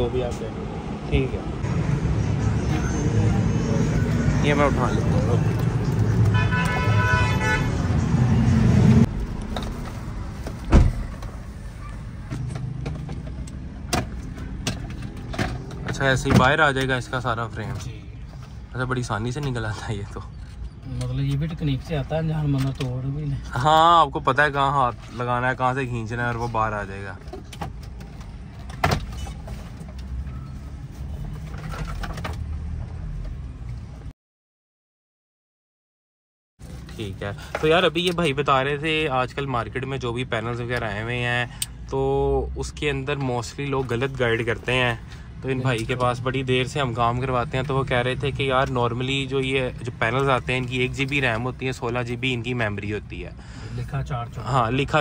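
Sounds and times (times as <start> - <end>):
low vehicle rumble: 7.7 - 19.6
dull thump: 10.6 - 11.2.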